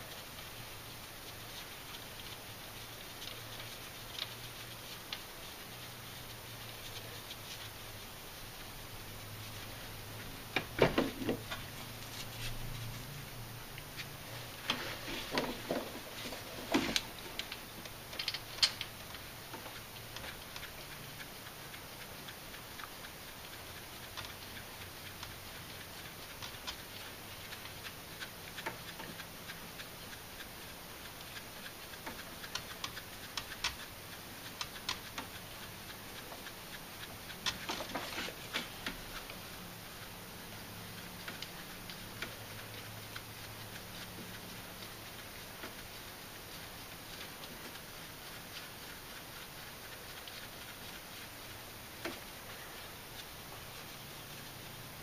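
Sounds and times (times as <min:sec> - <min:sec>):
light metallic clicks and taps: 0:16.7 - 0:20.7.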